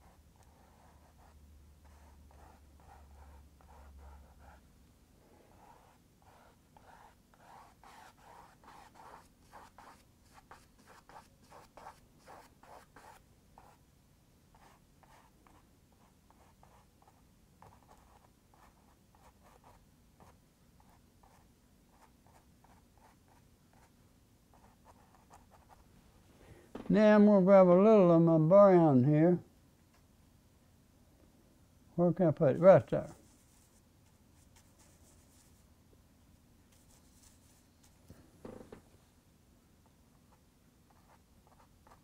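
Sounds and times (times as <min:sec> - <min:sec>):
paintbrush strokes on canvas: 0:33.0 - 0:35.7, 0:36.7 - 0:38.0.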